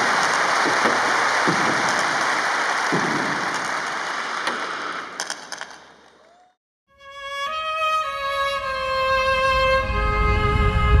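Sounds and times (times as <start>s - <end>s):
audience applause: 0.0s - 6.6s
slow music with long held notes: 6.9s - 11.0s.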